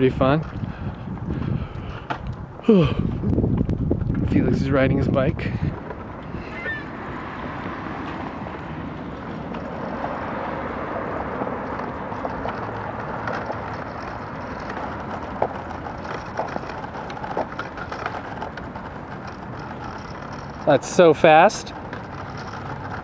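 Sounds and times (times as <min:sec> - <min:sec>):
bike rolling over asphalt: 0:00.0 - 0:23.0
sharp clicks and ticks: 0:07.6 - 0:23.0.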